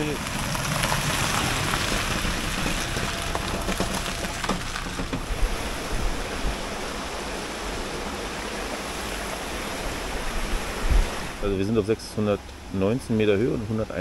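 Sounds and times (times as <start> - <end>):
vehicle passing on dirt track: 0.0 - 7.4.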